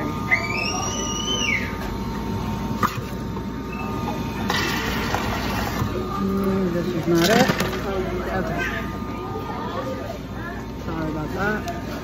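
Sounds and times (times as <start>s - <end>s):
steady machine hum: 0.0s - 12.0s
soda fountain squeak: 0.3s - 1.9s, 3.7s - 5.0s.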